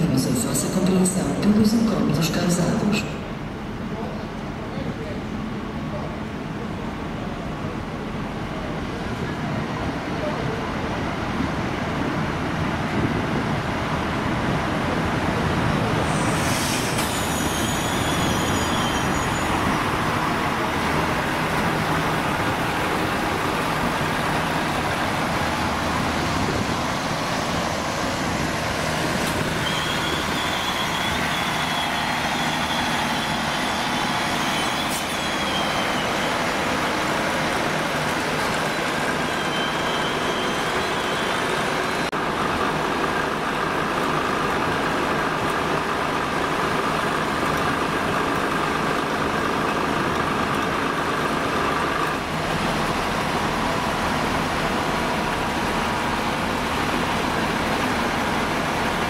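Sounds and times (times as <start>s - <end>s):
train diesel engine running: 0.0s - 59.0s
thin high squeal: 16.1s - 19.8s, 33.5s - 36.3s.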